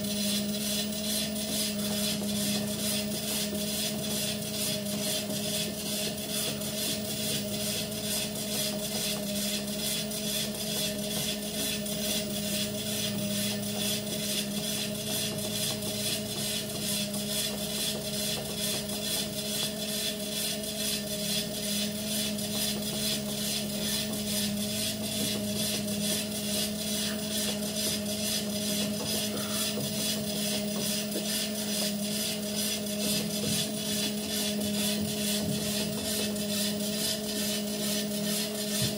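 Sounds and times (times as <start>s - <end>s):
treadmill belt ticking: 0.0s - 38.9s
treadmill motor hum: 0.0s - 38.9s.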